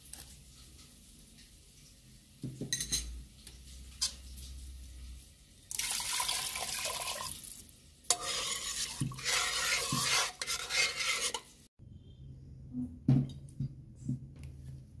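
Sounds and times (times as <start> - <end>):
water pouring into a pot: 5.7 - 10.3
metal spoon scraping a pot: 8.1 - 11.7.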